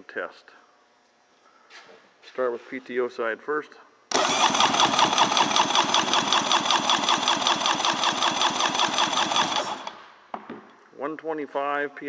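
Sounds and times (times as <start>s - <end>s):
engine cranking with starter: 4.1s - 10.0s.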